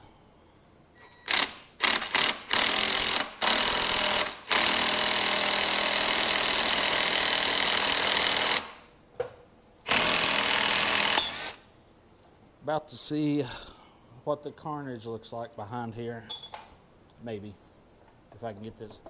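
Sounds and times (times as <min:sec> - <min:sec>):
impact wrench hammering: 0:01.3 - 0:08.8.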